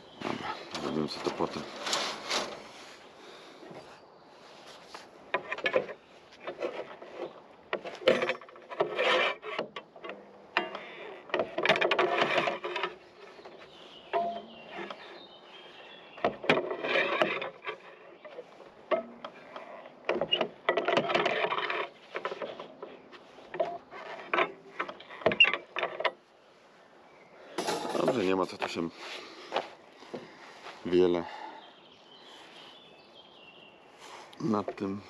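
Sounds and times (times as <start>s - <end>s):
steel rebar scraping and knocking: 0.2s - 3.0s, 5.3s - 15.3s, 16.2s - 26.3s, 27.6s - 28.8s.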